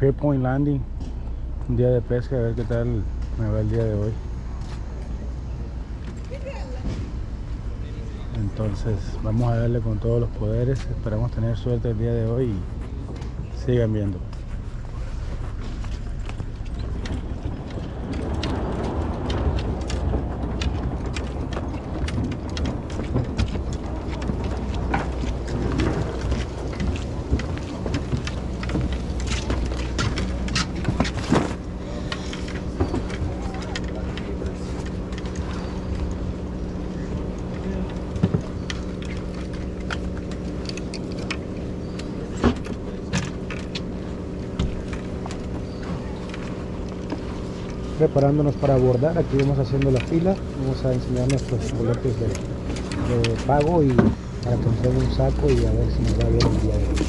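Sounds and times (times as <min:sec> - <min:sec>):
boat engine idling: 0:00.0 - 0:57.0
footsteps on dock: 0:00.0 - 0:57.0
gear knocking and clicking: 0:09.4 - 0:57.0.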